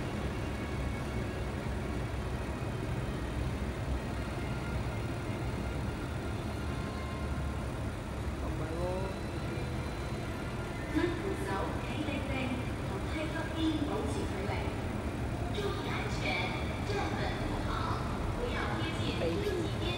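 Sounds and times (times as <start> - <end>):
railway platform background rumble: 0.0 - 19.9.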